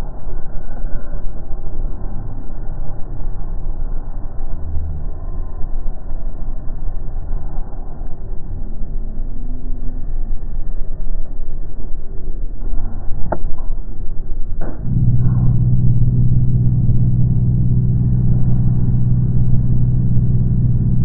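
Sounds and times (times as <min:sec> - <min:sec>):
car engine and road rumble: 0:14.8 - 0:21.0.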